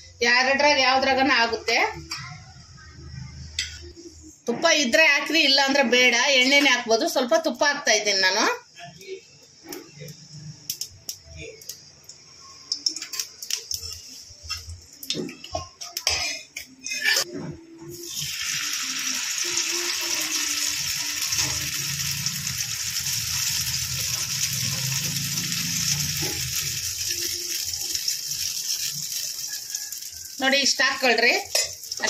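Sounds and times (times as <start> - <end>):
batter sizzling in a pan: 18.0 - 32.0.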